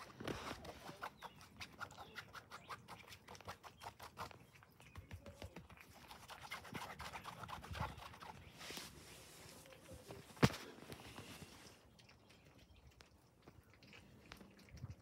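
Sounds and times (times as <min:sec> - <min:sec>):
cat chewing food: 0:10.8 - 0:15.0.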